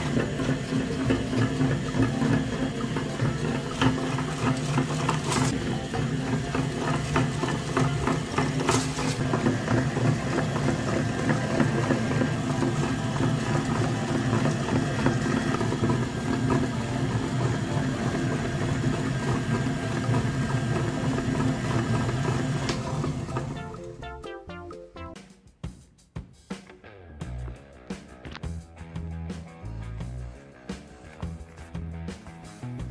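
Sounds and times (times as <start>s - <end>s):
meat grinder motor humming: 0.0s - 24.0s.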